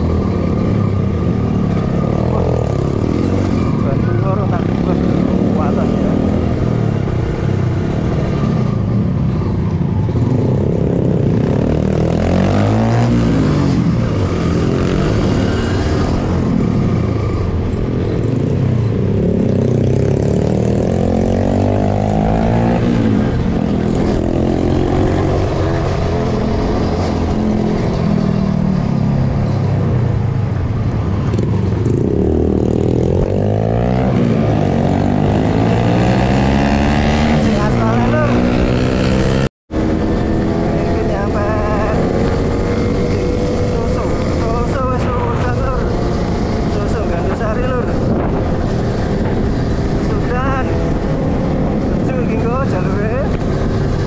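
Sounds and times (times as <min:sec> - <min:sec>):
motorcycle engine revving: 0:00.0 - 0:54.0
steady rushing noise: 0:30.0 - 0:54.0.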